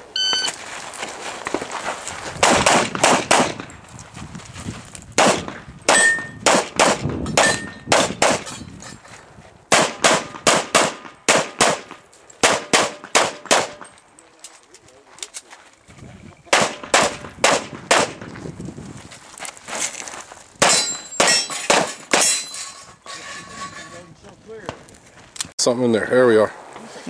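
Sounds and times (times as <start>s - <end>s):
pistol shots: 2.4s - 3.7s, 5.2s - 8.5s, 9.7s - 13.9s, 16.5s - 18.2s, 20.6s - 22.3s.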